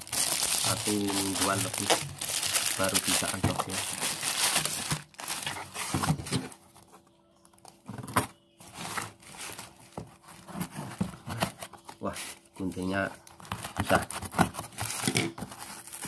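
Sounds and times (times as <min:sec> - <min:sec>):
plastic bag crinkling: 0:00.0 - 0:05.9.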